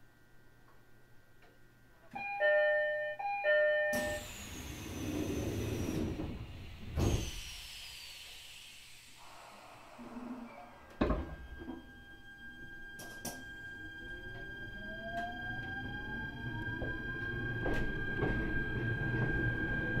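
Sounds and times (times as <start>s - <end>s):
two-tone door chime: 2.2s - 4.3s
train doors thudding shut: 11.0s - 11.8s.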